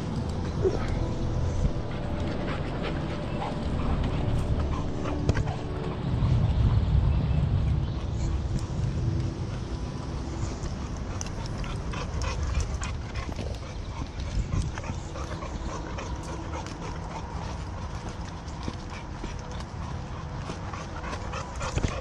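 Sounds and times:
wind on microphone: 0.0s - 22.0s
dog: 0.1s - 6.4s, 10.9s - 22.0s
footsteps on dirt trail: 8.0s - 22.0s.

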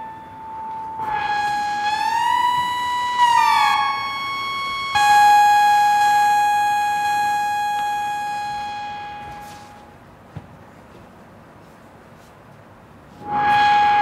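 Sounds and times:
synthesizer tones: 0.0s - 9.9s, 13.2s - 14.0s.

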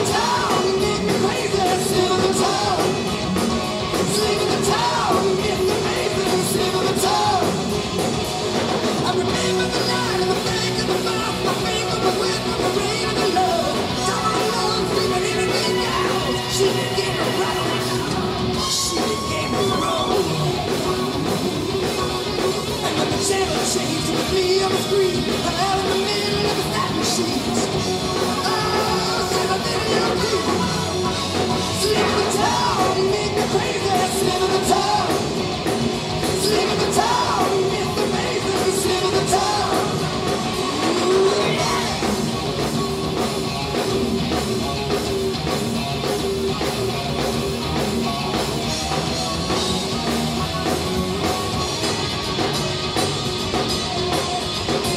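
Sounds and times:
man singing: 0.0s - 7.8s, 8.8s - 42.4s
hard rock band playing: 0.0s - 54.9s.

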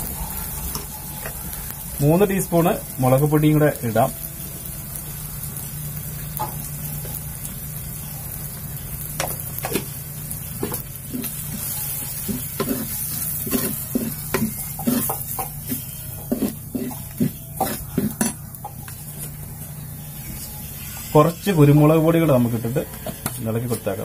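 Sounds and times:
food sizzling in hot oil: 0.0s - 24.0s
steel spoon scraping a pot: 11.1s - 18.4s.

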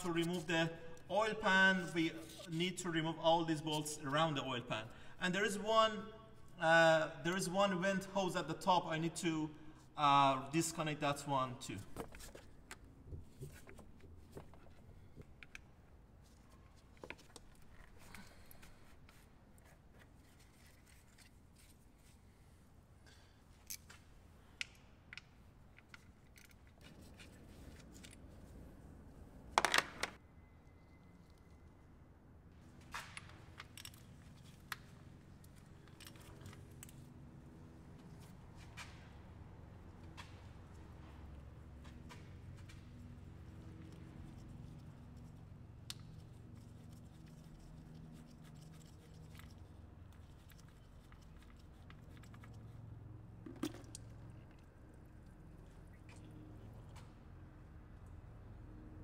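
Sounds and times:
gloved hands clicking and rustling: 32.9s - 37.2s, 41.8s - 52.9s.

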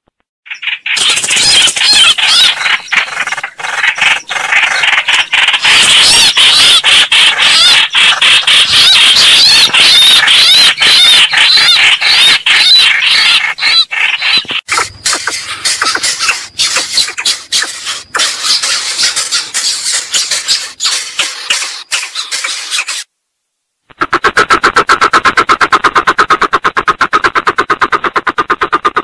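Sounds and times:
shrill bird squeals: 0.5s - 23.1s.

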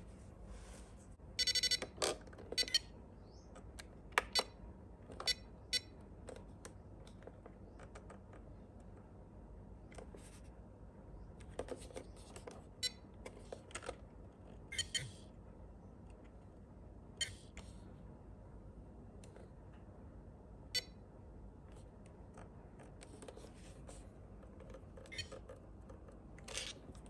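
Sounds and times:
short electronic beeps: 1.4s - 1.8s, 14.7s - 15.2s, 17.2s - 17.4s, 20.8s - 21.0s.

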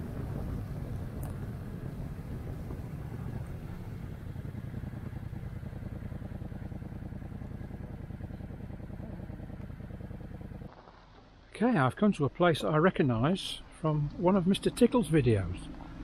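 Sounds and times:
motorcycle engine running: 0.0s - 11.4s
road noise: 0.0s - 16.0s.

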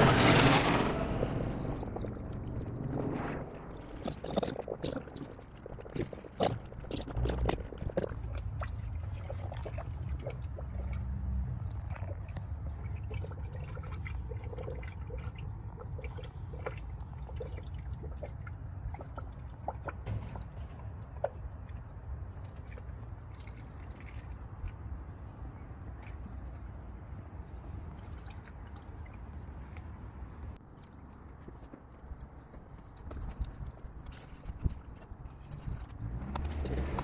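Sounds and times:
low steady rumble: 0.0s - 37.0s
liquid trickling into funnel: 3.5s - 20.0s.

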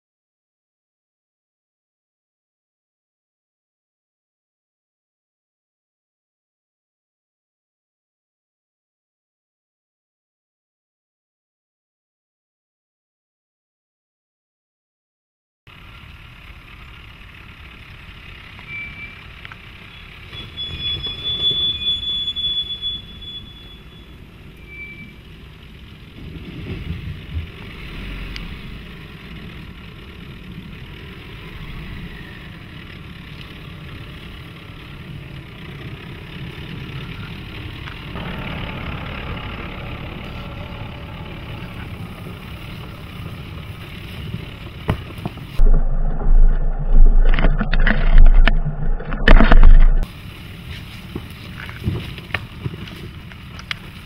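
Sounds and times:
engine and tyre rumble: 15.7s - 54.0s
high squeal: 18.6s - 25.4s
vehicle bump: 44.2s - 50.1s.

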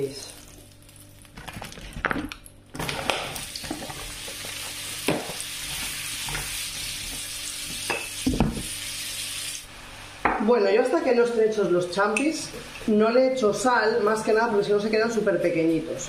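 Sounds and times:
mushrooms sizzling in oil: 2.9s - 11.0s.

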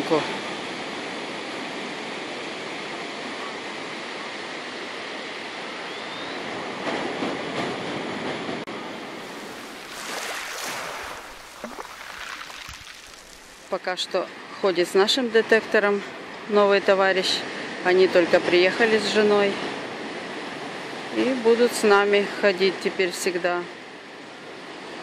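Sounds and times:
ocean waves washing on sand: 8.7s - 14.1s.

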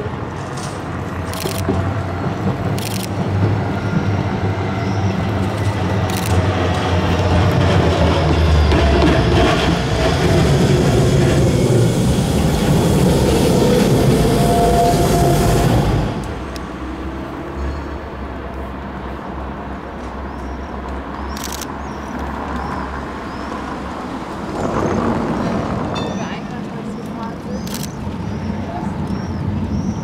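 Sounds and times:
street traffic noise: 0.0s - 30.0s
tram wheels rumbling on rails: 0.0s - 30.0s
tram wheel squeal: 1.4s - 16.9s, 24.4s - 30.0s.

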